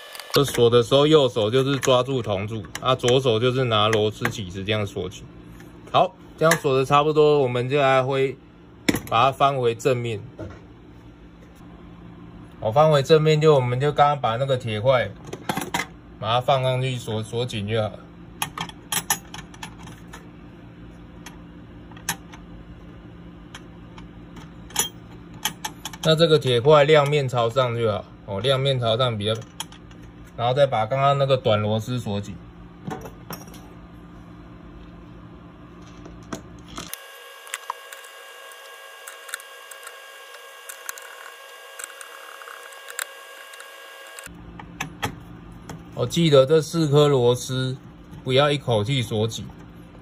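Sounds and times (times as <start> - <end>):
screwdriver clicks and metal scraping: 36.7 - 44.3.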